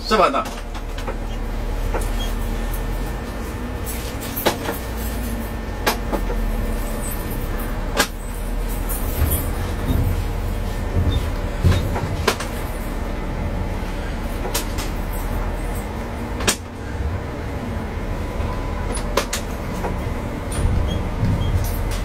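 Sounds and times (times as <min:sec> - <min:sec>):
train diesel engine running: 0:00.0 - 0:22.0
deep rumble: 0:05.0 - 0:22.0
wheels knocking on rail joints: 0:09.0 - 0:12.8.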